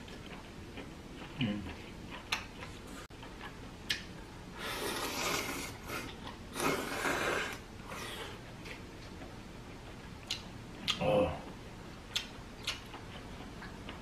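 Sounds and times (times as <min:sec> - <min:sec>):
man slurping noodles: 0:04.6 - 0:08.4.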